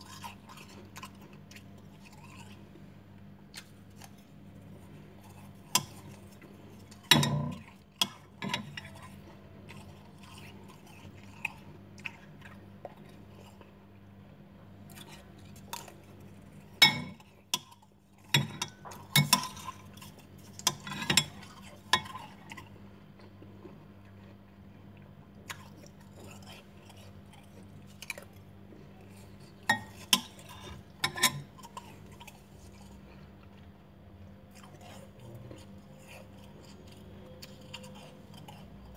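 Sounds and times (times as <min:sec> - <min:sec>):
crunching frost being chewed: 0:00.0 - 0:38.9
steady low hum: 0:00.0 - 0:38.9
metal spoon scraping glass bowl: 0:29.7 - 0:31.5.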